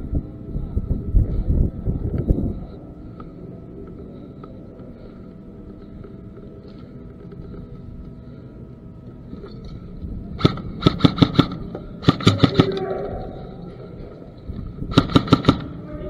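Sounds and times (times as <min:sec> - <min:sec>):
airsoft gun shots: 0:10.4 - 0:12.8, 0:14.9 - 0:15.8.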